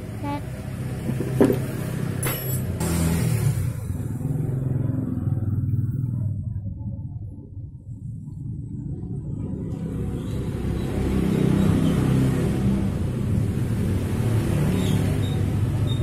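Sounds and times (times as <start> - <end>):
car engine rumbling: 0.0 - 10.4.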